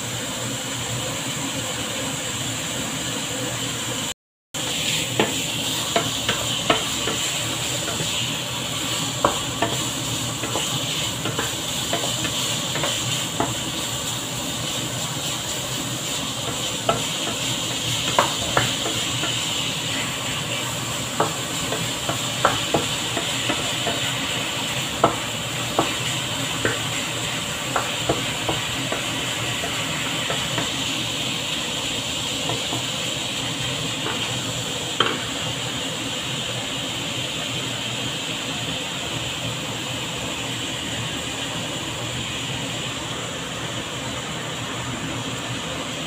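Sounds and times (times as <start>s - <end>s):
ham sizzling in a frying pan: 0.0s - 46.0s
wooden spatula knocking on pan: 5.2s - 8.1s, 9.2s - 13.6s, 16.5s - 17.5s, 18.1s - 19.4s, 21.2s - 24.1s, 25.0s - 26.9s, 27.7s - 30.8s, 35.0s - 35.3s.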